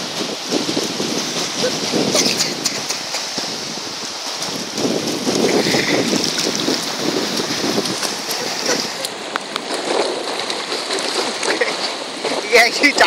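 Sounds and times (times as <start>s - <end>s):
surf washing over sand: 0.0s - 13.0s
wind on microphone: 0.0s - 13.0s
small splashes in water: 4.1s - 12.6s.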